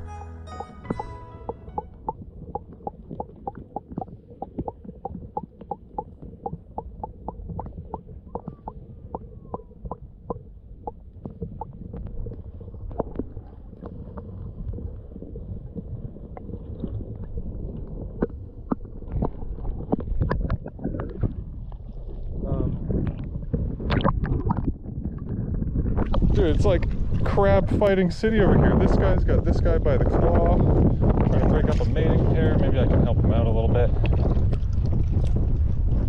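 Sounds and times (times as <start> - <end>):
underwater rumble of moving water: 0.8 - 36.0
sharp underwater clicks: 0.9 - 14.3, 23.1 - 25.4.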